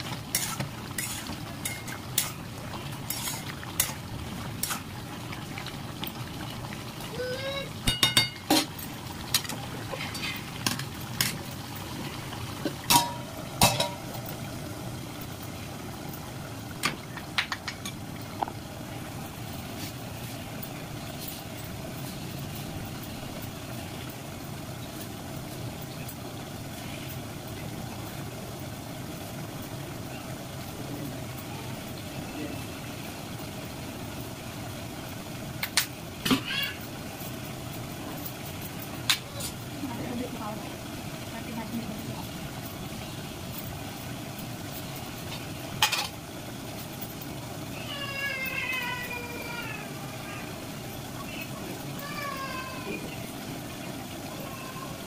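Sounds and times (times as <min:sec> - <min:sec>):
low background hum: 0:00.0 - 0:55.0
metal utensils clinking on cookware: 0:00.1 - 0:02.4, 0:03.0 - 0:04.0, 0:07.8 - 0:11.6, 0:12.7 - 0:14.1, 0:45.8 - 0:46.2.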